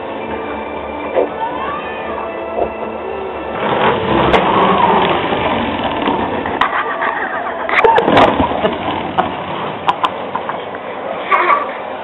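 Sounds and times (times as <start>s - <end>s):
toy truck wheels rumbling on tile: 3.4s - 10.8s.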